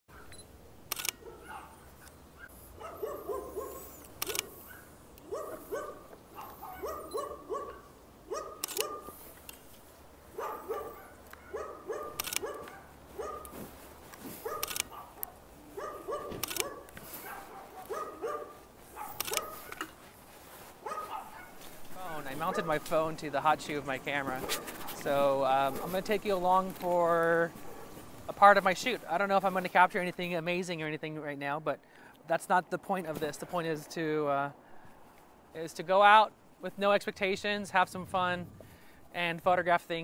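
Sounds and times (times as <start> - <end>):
sharp clicks: 0.3 - 1.2, 4.0 - 4.6, 8.6 - 9.6, 12.2 - 12.8, 14.6 - 15.4, 19.2 - 19.6
dog barking: 1.2 - 3.9, 4.6 - 9.2, 10.3 - 13.6, 14.4 - 19.8, 20.8 - 21.6, 22.5 - 22.8, 24.4 - 25.0, 27.6 - 28.0.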